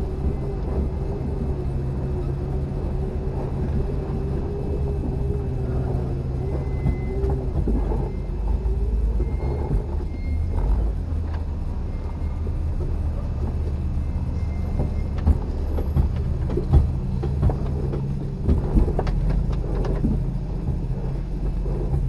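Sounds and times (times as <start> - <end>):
engine rumbling at low speed: 0.0 - 22.0
vehicle knocking over bumps: 14.6 - 22.0.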